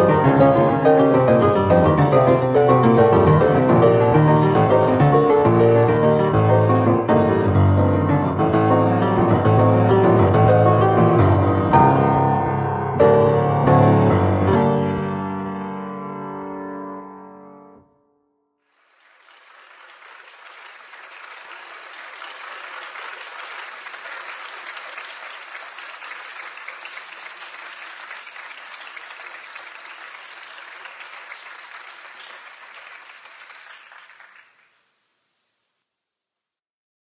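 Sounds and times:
audience applauding: 18.7 - 34.9.

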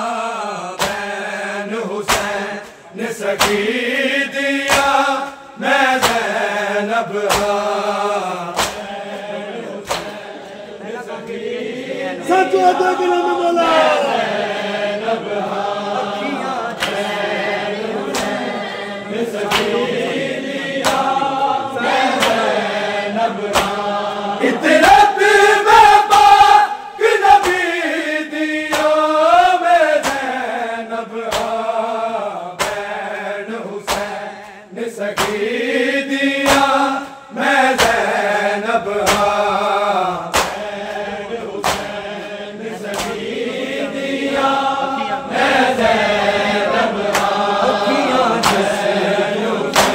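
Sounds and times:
men chanting a lament in unison: 0.0 - 49.9
hands slapping chests: 0.8 - 10.6, 16.7 - 17.4, 18.0 - 20.1, 20.7 - 22.8, 23.4 - 30.6, 31.2 - 32.0, 32.6 - 43.6, 45.9 - 49.9.

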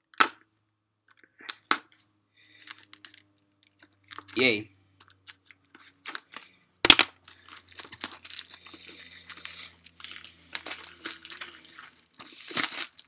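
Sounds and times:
plastic wrap crinkling and tearing: 5.2 - 6.6, 7.2 - 13.0.

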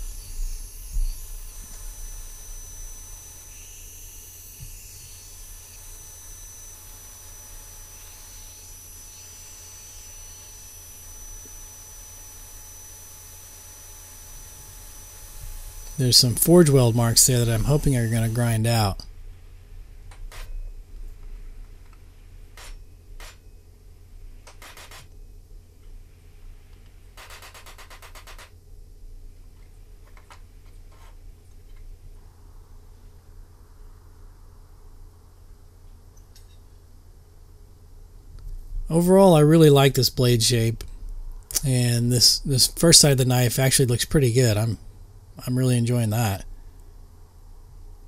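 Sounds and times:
belt grinder grinding metal: 0.0 - 19.0
low steady hum: 0.0 - 48.0.

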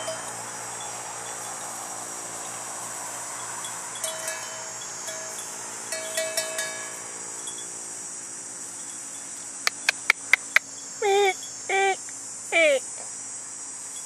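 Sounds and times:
insects buzzing: 0.0 - 14.0
sharp clicks: 9.7 - 10.6
water buffalo squeaking: 9.7 - 12.0, 12.6 - 12.8.

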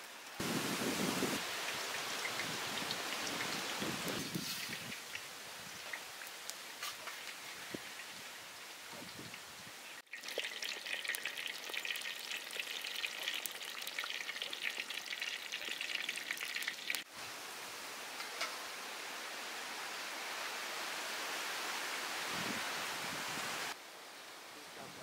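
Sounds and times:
bananas deep-frying in oil: 1.4 - 17.1.

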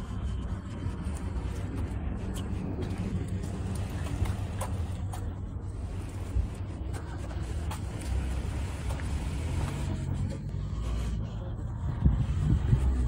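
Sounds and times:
distant road traffic rumble: 0.0 - 13.0
footsteps on paving stones: 0.0 - 13.0.

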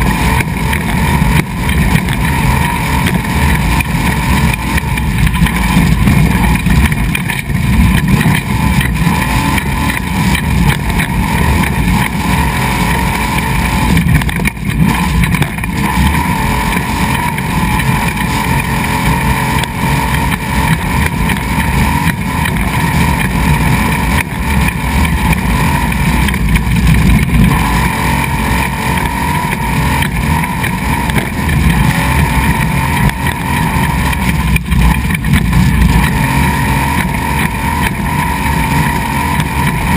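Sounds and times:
truck engine and drivetrain noise: 0.0 - 39.9
tyres rumbling on gravel: 0.0 - 39.9.

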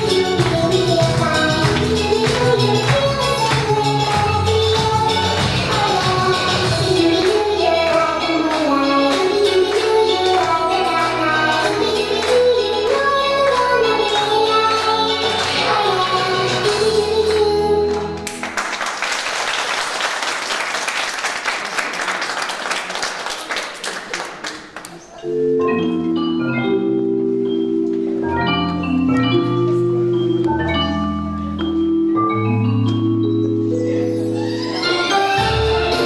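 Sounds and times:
instrumental music: 0.0 - 18.6, 25.2 - 36.0
audience applause: 17.9 - 25.0.

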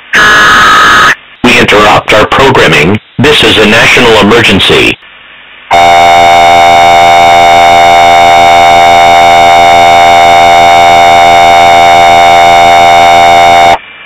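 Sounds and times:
two-tone alarm: 0.1 - 1.2, 5.7 - 13.8.

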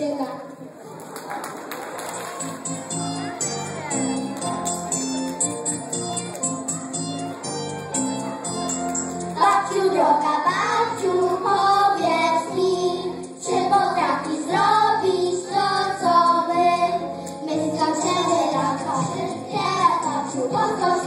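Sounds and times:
children singing through microphones: 9.4 - 21.0.

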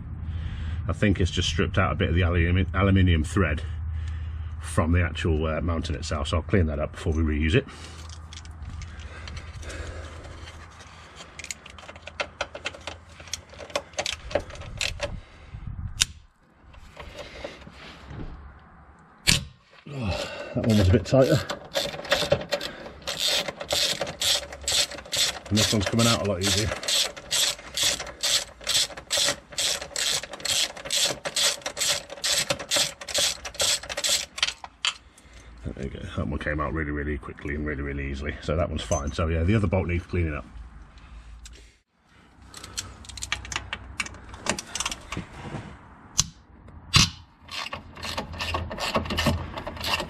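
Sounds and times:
metallic ratchet clicks and clinks: 21.1 - 34.6.

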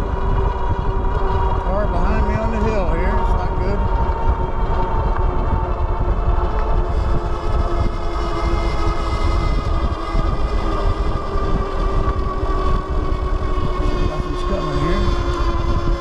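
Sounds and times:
electric motors whining: 0.0 - 16.0
wind rumbling on microphone: 0.0 - 16.0.

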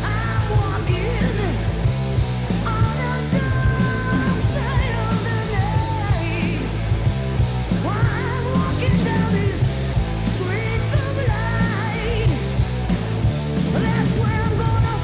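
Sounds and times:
rock band playing: 0.0 - 15.0
female vocal singing: 2.6 - 6.8, 7.8 - 9.7.

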